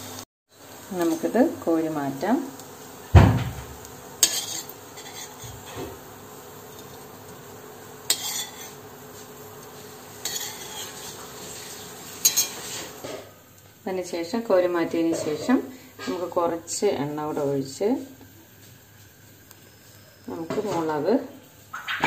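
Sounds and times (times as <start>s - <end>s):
faint oil sizzle: 0.0s - 22.0s
spoon clinking and scraping metal: 4.2s - 5.6s, 8.1s - 8.8s, 10.2s - 11.2s, 12.2s - 12.7s.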